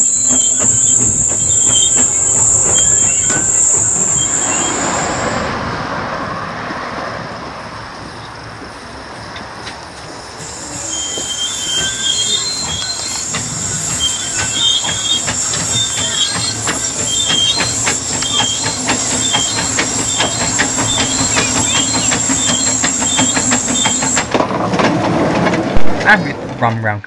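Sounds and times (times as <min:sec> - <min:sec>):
steam locomotive rhythmic beat: 0:00.0 - 0:05.3, 0:10.4 - 0:24.4
high metallic wheel squeals: 0:00.0 - 0:05.5, 0:10.1 - 0:24.3
steady high steam hiss: 0:00.0 - 0:05.8, 0:07.3 - 0:24.3.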